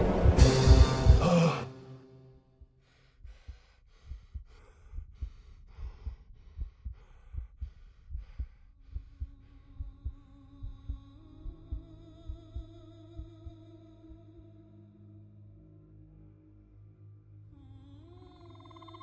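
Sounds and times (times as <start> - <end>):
heartbeat thumps: 0.0 - 1.5, 2.6 - 14.3
loud music passage: 0.0 - 2.4.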